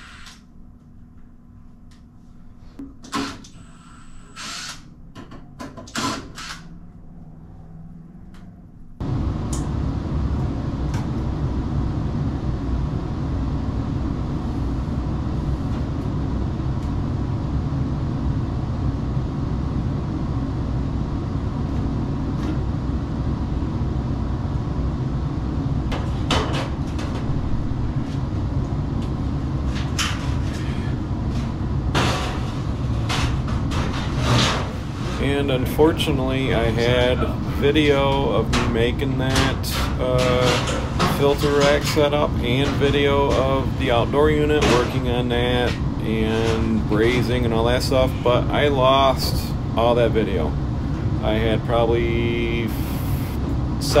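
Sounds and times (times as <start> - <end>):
loud mechanical rushing hum: 3.4 - 54.0
sheet-metal ductwork clanking: 25.9 - 28.1, 29.0 - 52.7.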